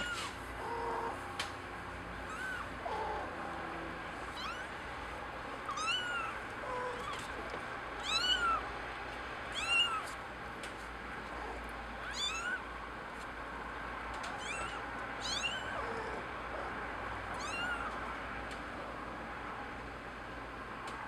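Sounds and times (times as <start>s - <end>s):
kitten mewing: 0.0s - 1.5s, 2.1s - 4.8s, 5.6s - 8.7s, 9.5s - 10.2s, 11.2s - 12.7s, 14.3s - 18.0s.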